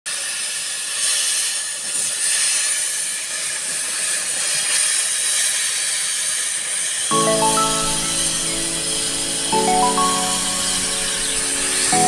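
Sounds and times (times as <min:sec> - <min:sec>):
welding hiss: 0:00.1 - 0:07.0.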